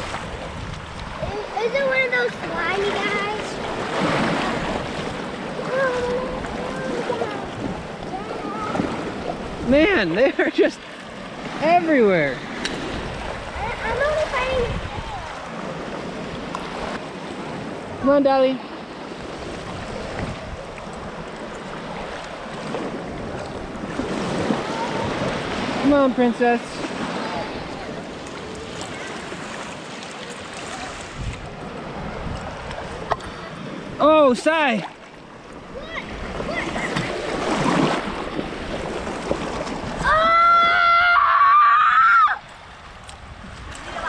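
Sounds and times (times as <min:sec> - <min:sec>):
wind on microphone: 0:00.0 - 0:10.4, 0:11.3 - 0:29.6, 0:30.6 - 0:34.0, 0:42.4 - 0:44.0
shallow surf splashing: 0:00.0 - 0:44.0
waves washing on sandy beach: 0:00.0 - 0:44.0
child screaming: 0:40.0 - 0:42.4.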